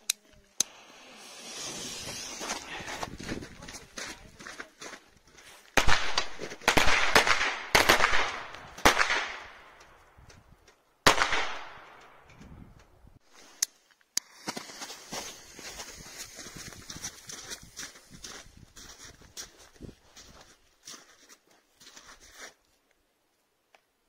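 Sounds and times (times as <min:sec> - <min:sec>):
firecrackers banging: 0:00.6 - 0:03.3.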